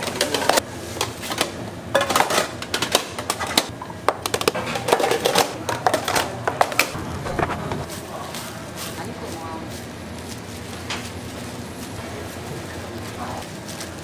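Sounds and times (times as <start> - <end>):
kitchen utensils clicking and knocking: 0.0 - 7.9.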